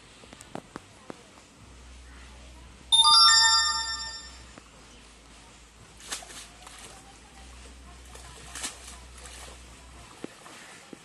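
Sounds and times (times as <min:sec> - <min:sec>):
electronic bell-like chime: 0:03.0 - 0:04.4.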